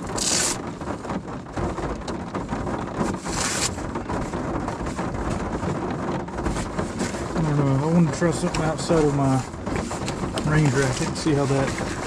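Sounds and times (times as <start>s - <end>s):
plastic crinkling: 0.0s - 0.6s, 6.4s - 12.0s
rain on car roof: 0.0s - 12.0s.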